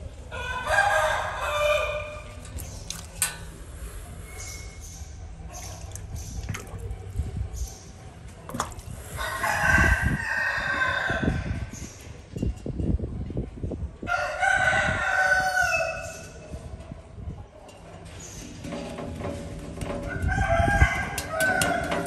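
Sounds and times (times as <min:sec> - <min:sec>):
water drips: 0:02.4 - 0:03.5, 0:05.6 - 0:06.9
rooster crowing: 0:09.2 - 0:11.5, 0:14.1 - 0:16.1.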